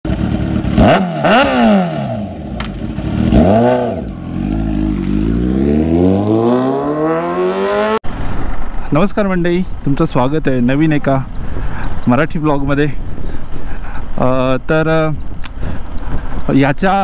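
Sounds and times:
motorcycle engine revving: 0:00.1 - 0:08.6.

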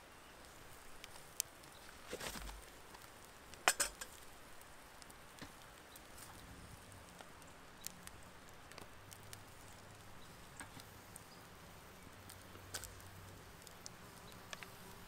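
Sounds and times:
small fire crackling: 0:00.0 - 0:15.0.

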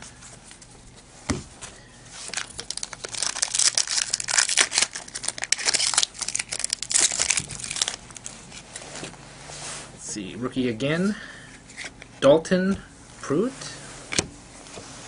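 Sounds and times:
foil wrapper crinkling and tearing: 0:02.2 - 0:08.6.

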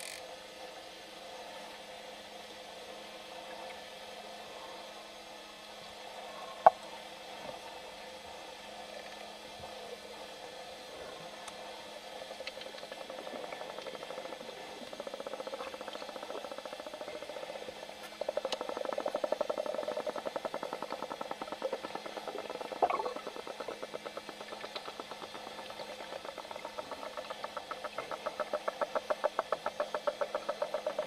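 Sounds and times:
dolphin click trains: 0:00.0 - 0:00.2, 0:12.3 - 0:31.0.

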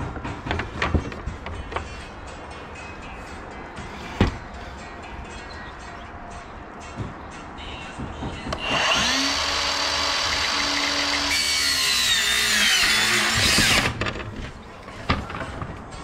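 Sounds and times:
miter saw motor whine: 0:08.6 - 0:13.8.

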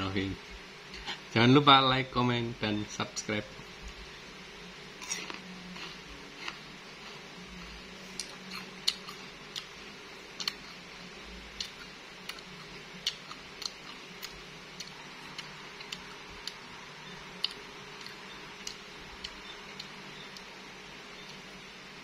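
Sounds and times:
faint steady hum: 0:00.0 - 0:22.0
mouth chewing crunchy fruit: 0:05.0 - 0:20.6.

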